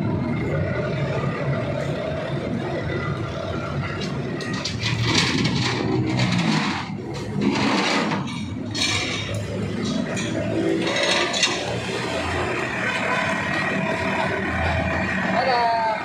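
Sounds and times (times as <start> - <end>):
diesel engine running: 0.0 - 16.0
metal scraping and clinking: 3.9 - 12.2.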